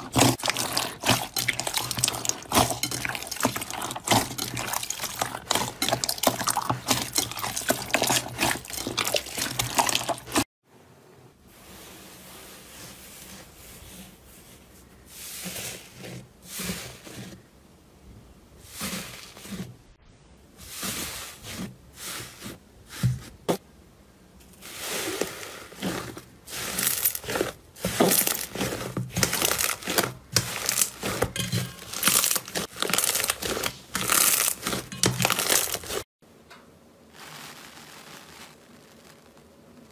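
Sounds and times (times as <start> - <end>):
slime squelching and crackling: 0.0 - 10.5, 24.5 - 36.1, 37.1 - 39.9
thick slime crackling and popping: 0.0 - 10.5, 25.8 - 36.0, 37.1 - 39.4.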